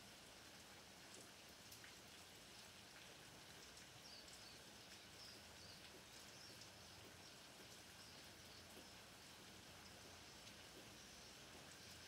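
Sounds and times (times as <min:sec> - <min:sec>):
faint rain falling: 0:00.0 - 0:12.0
rain drop ticks: 0:00.6 - 0:09.1, 0:09.7 - 0:12.0.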